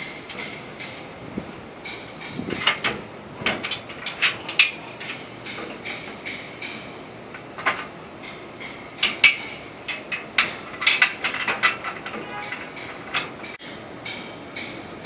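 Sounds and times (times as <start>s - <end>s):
steel parts clanking: 0.0s - 15.0s.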